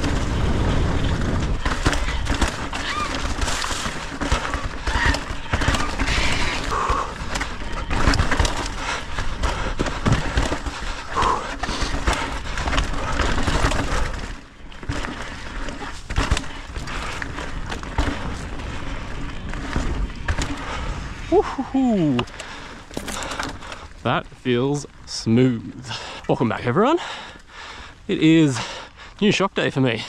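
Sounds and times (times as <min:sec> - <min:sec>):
bike knocks and clatters: 0:00.0 - 0:20.8, 0:22.2 - 0:23.8
tyres rumbling over dirt: 0:00.0 - 0:30.0.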